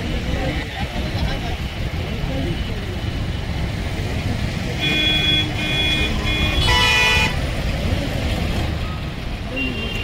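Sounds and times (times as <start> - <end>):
engines rumbling: 0.0 - 10.0.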